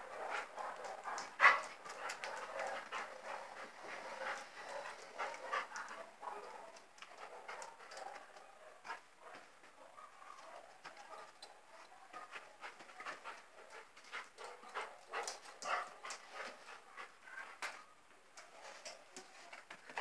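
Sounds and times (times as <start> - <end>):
dog panting: 0.0 - 9.1, 10.4 - 17.2.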